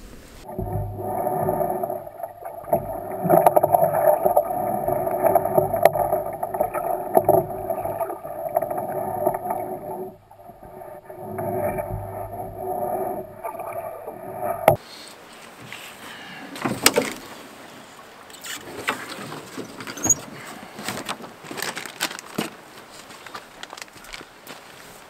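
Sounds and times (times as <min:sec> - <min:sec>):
gear knocking and clunking: 0:00.0 - 0:14.8
river water rushing along canoe hull: 0:00.0 - 0:25.0
footsteps in dry brush: 0:21.4 - 0:25.0.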